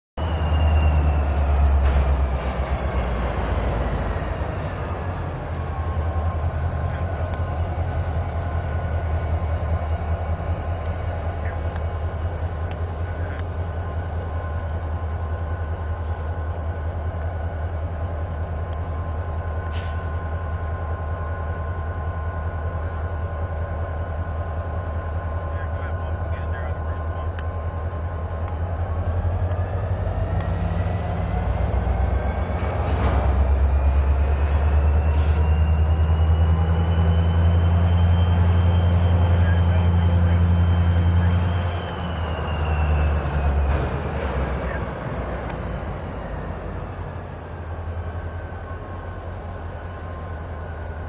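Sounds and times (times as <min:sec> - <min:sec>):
diesel locomotive engine rumble: 0:00.1 - 0:51.0.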